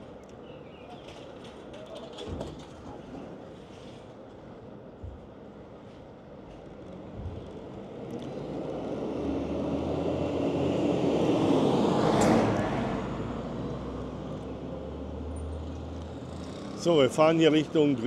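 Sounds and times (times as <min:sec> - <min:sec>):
low hum of moving vehicle: 0:00.0 - 0:18.0
vehicle passing close by: 0:08.2 - 0:18.0.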